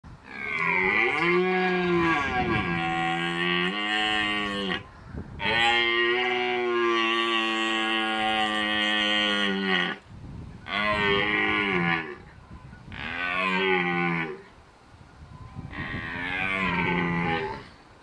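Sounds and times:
deer stag roaring: 15.7 - 17.8.

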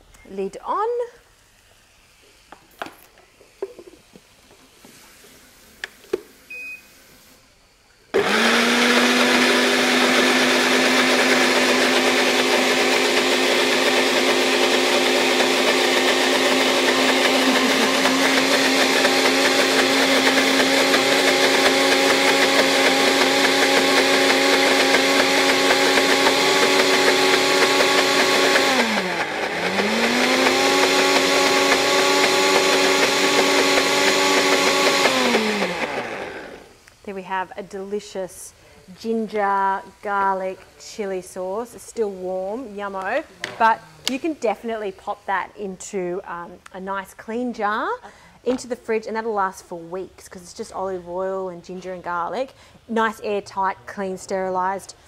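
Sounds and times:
blender running: 8.1 - 36.8.

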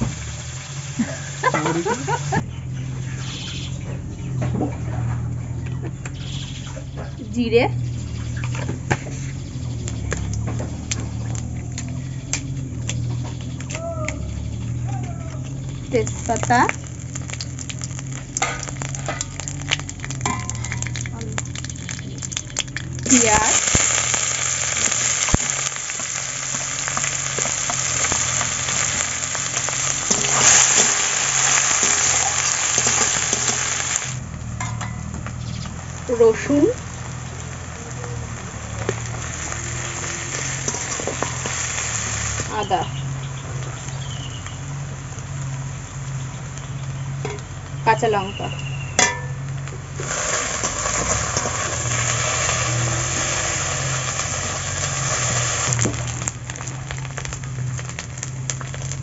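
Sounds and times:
onions sizzling in hot oil: 0.0 - 2.4, 6.1 - 59.0
low hum: 0.0 - 59.0
metal spatula scraping a wok: 39.8 - 42.7.

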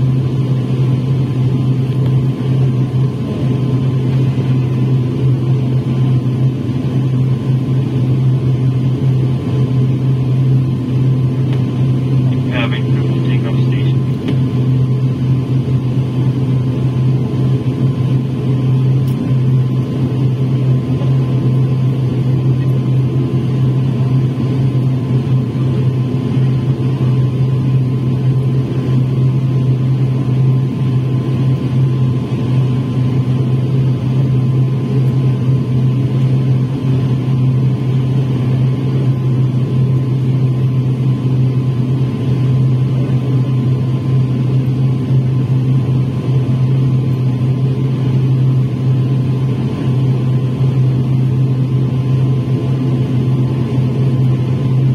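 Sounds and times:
turboprop engines droning: 0.0 - 54.9.

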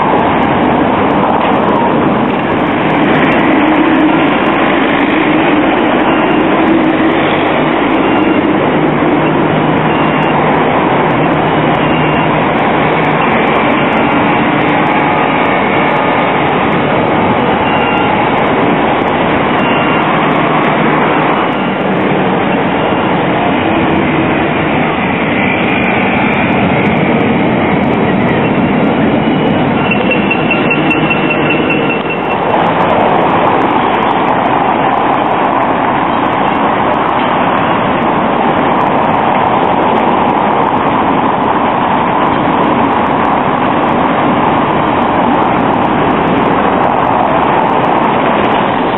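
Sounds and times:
trams running past: 0.0 - 48.9.

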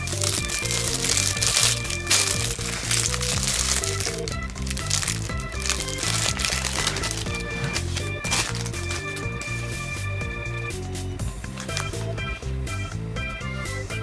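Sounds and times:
paper wrapper crinkling: 0.0 - 9.7, 11.5 - 12.1
background music: 0.0 - 14.0.

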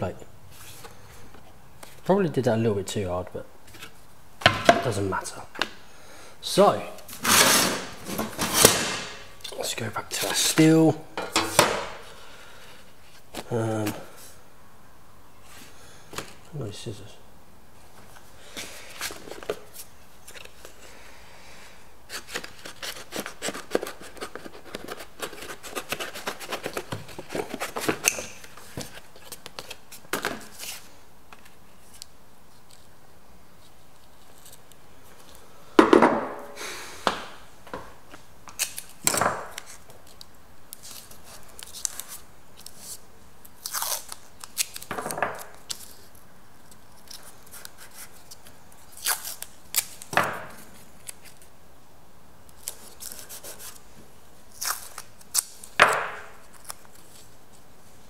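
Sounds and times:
scrapes and handling noises: 6.9 - 14.4, 22.1 - 32.9
tape being torn: 38.5 - 50.2, 54.5 - 57.2.

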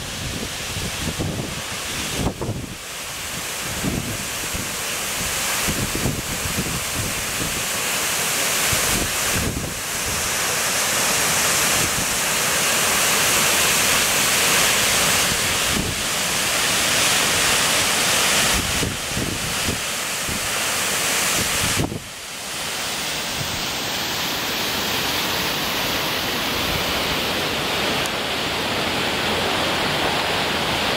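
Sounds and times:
waterfall rushing: 0.0 - 30.9
wind buffeting microphone: 0.1 - 2.8, 21.4 - 22.1.

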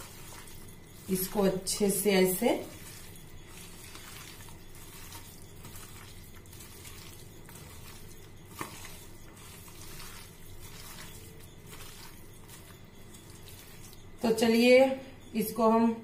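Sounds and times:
hands squishing raw chicken: 0.0 - 14.2.

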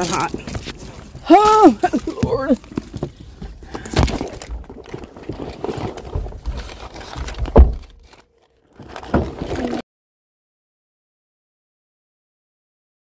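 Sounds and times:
phone handling rubbing and rustling: 0.0 - 9.8.

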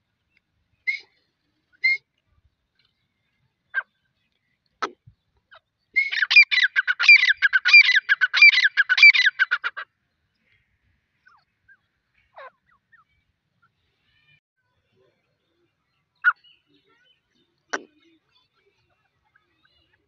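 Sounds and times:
francolin calling: 6.0 - 9.8.

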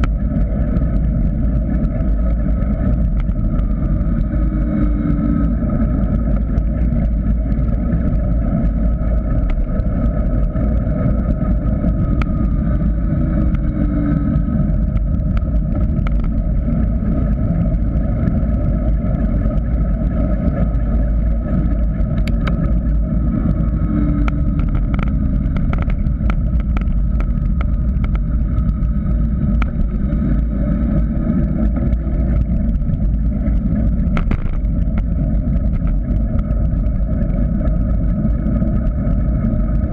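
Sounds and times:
wind rushing over camera: 0.0 - 39.9
bike rattles and knocks: 34.1 - 35.0.

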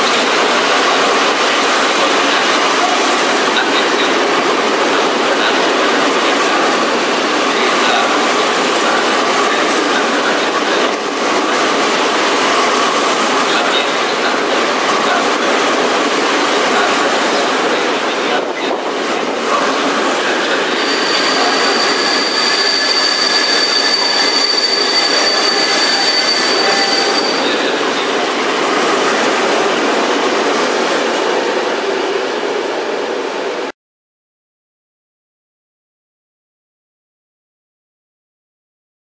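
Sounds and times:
train wheels rumbling on rail: 0.0 - 33.7
high wheel squeal: 19.2 - 28.2.

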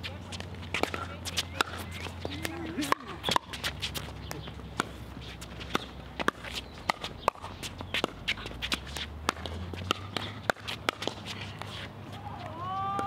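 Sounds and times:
sneakers shuffling on hard court: 0.0 - 12.6.

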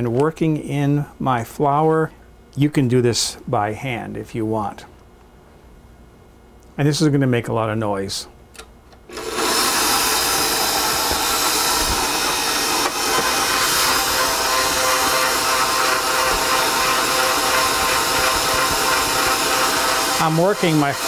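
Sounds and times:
stand mixer motor running: 9.1 - 21.0.

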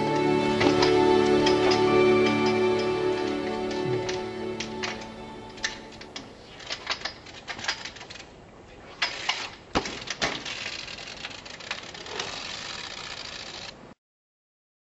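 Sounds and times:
bike tapping and clicking: 0.0 - 8.3, 8.9 - 13.7
rapid ticking of bike wheel: 9.1 - 13.7
bike landing thud: 9.7 - 10.6.

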